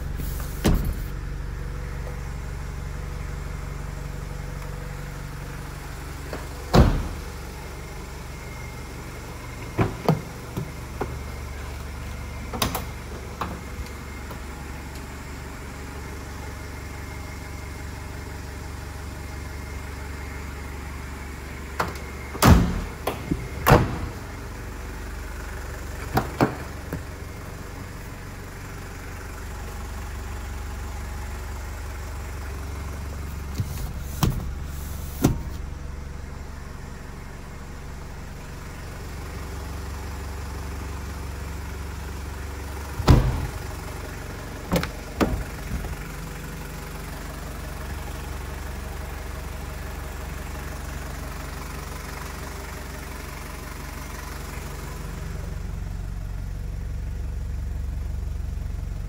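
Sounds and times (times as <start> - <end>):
car doors clunking shut: 0.0 - 1.2, 6.2 - 7.4, 9.5 - 14.5, 21.7 - 24.5, 25.9 - 27.2, 33.2 - 35.7, 42.9 - 46.2
diesel engine idling: 0.0 - 59.0.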